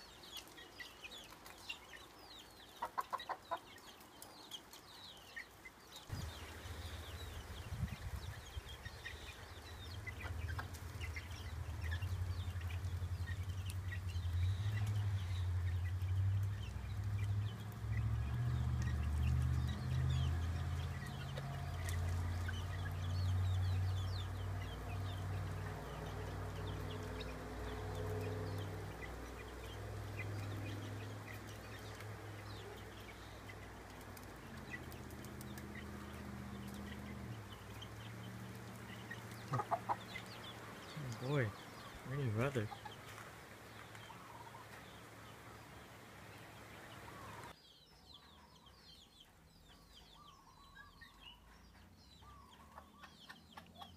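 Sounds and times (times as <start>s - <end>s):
chicks peeping: 0.0s - 53.9s
hen clucking: 2.7s - 4.0s, 7.8s - 13.8s, 38.8s - 43.2s, 51.3s - 53.9s.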